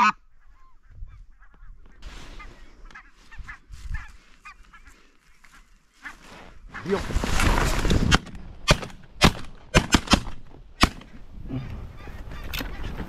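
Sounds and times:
shotgun shots: 8.0 - 11.1.

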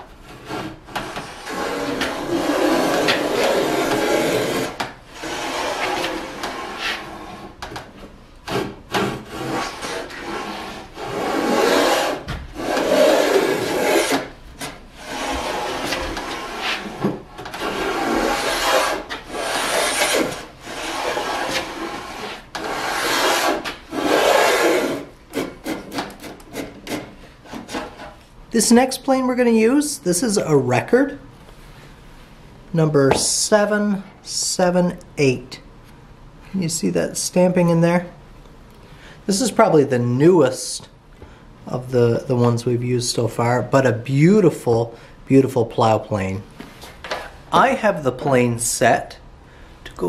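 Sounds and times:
plane rasping along wood: 0.3 - 7.5, 8.5 - 14.3, 15.0 - 28.1.

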